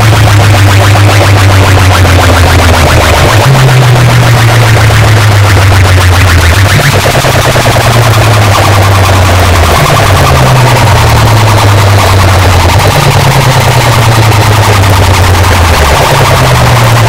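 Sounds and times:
loud distorted dance music: 0.0s - 17.0s.

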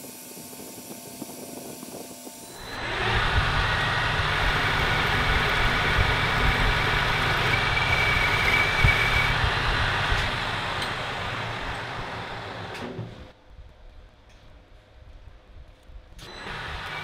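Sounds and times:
thin high whine: 0.0s - 13.2s
lathe cutting metal: 2.4s - 13.2s
machine low rumble: 2.4s - 15.8s.

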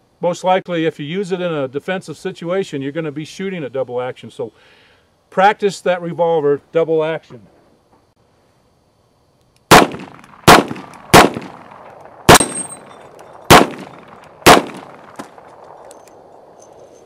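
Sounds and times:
revolver shots with echo: 12.3s - 12.9s.

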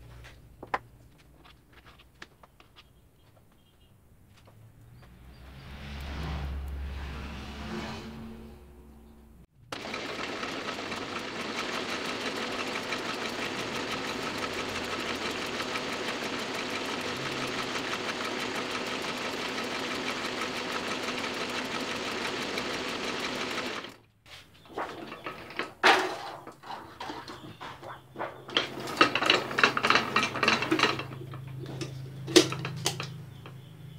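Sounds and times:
printing press clattering: 9.7s - 24.0s, 24.7s - 33.6s.

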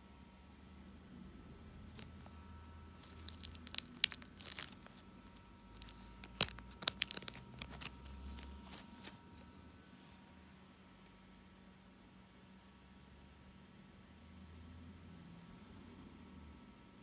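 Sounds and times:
plastic pages crinkling: 1.9s - 9.5s.

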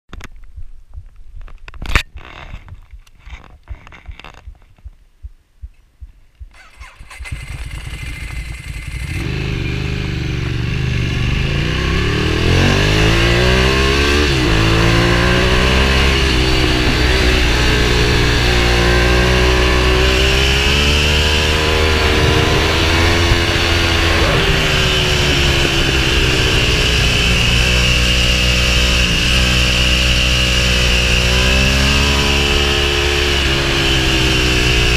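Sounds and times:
handling knocks and clicks: 0.1s - 5.0s
motorcycle engine revving: 6.5s - 34.9s
wind rushing: 11.4s - 30.0s.

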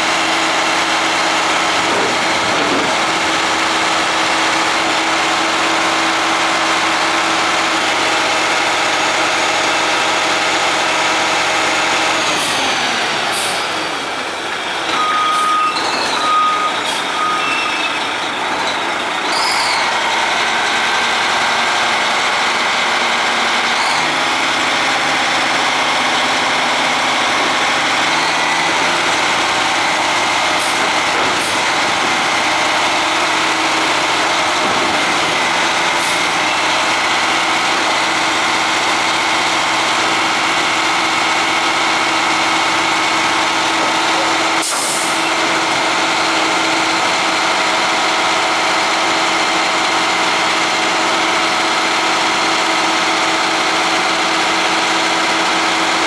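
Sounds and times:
hydraulic hoist sliding dumpster: 0.0s - 8.4s, 23.7s - 56.0s
diesel truck engine running: 0.0s - 15.3s, 16.3s - 56.0s.

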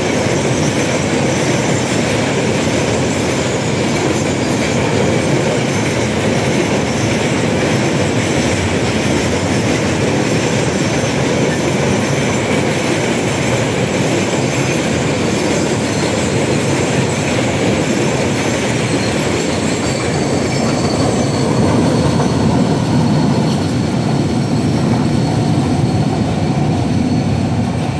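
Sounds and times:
train wheels rumbling on rails: 0.0s - 27.9s
thin wheel squeal: 18.8s - 26.2s.

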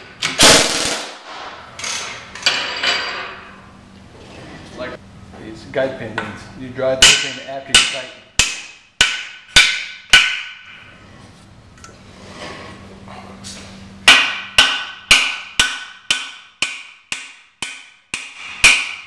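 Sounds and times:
hammer blows ringing on metal: 7.0s - 10.8s, 14.0s - 19.0s.

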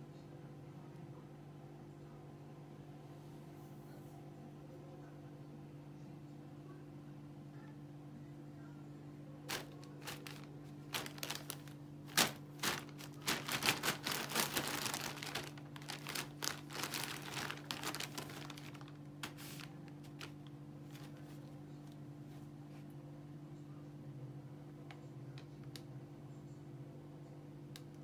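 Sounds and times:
plastic bags crinkling: 9.5s - 21.3s.

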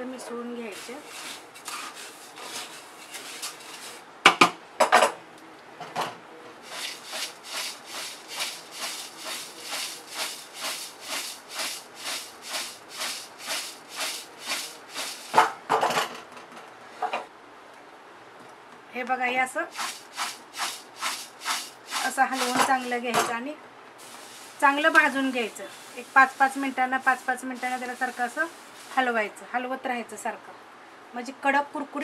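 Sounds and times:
dry flakes rattling in shaken pot: 0.6s - 4.0s, 6.6s - 15.5s, 19.7s - 23.1s, 24.0s - 29.4s
scrapes in pot: 0.7s - 4.0s, 6.6s - 15.5s, 19.7s - 23.0s, 24.0s - 29.2s.

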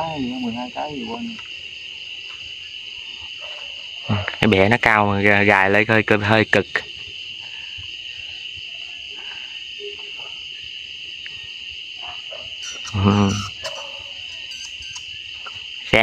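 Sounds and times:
night insect chorus: 0.0s - 16.0s
low human voice: 12.9s - 13.4s.

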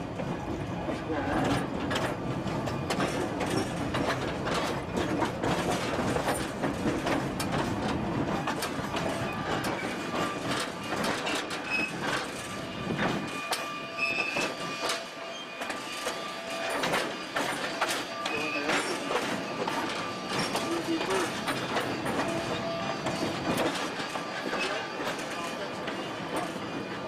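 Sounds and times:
rail car rattling: 0.0s - 27.0s
wheels clicking over rail joints: 1.4s - 26.8s
wheel squeals: 8.4s - 27.0s.

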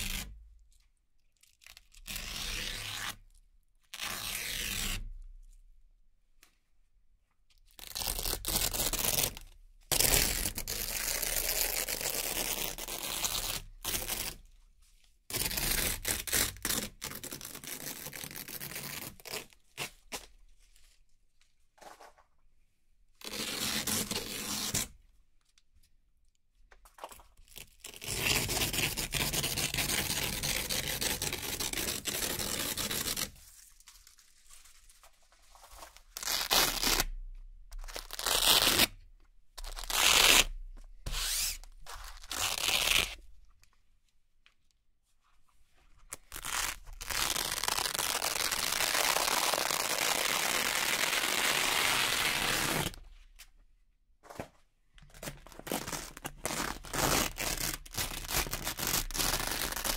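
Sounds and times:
velcro strips tearing: 0.0s - 0.4s, 1.4s - 3.2s, 3.9s - 5.1s, 7.8s - 14.4s, 15.3s - 20.3s, 23.2s - 25.0s, 27.0s - 33.4s, 36.1s - 39.0s, 39.6s - 43.2s, 46.1s - 53.0s, 55.4s - 59.9s.

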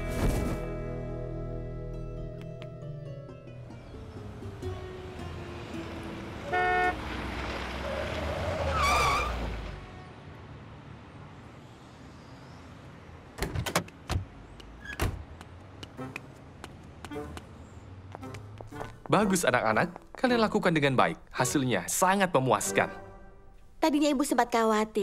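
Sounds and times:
car horn honk: 6.4s - 7.1s
wavering tire squeal: 6.4s - 9.8s.

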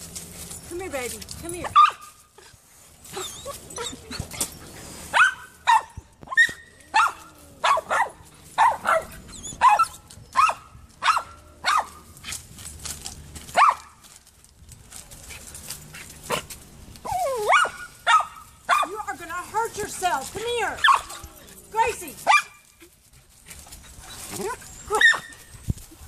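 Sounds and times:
dog barking: 1.8s - 2.0s, 5.1s - 11.9s, 13.6s - 13.9s, 17.5s - 19.0s, 20.8s - 21.2s, 22.3s - 22.6s, 24.9s - 25.3s.

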